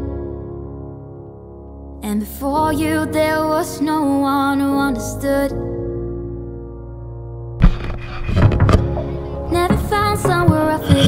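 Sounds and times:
instrumental accompaniment: 0:07.6 - 0:11.0
person singing: 0:09.4 - 0:11.0.

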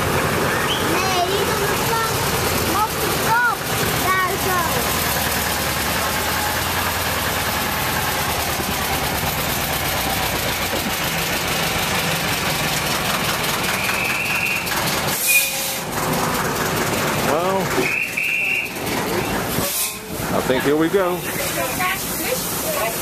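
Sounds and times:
diesel engine idling: 0:00.0 - 0:23.0
high squeal: 0:13.7 - 0:15.9, 0:17.8 - 0:18.8.

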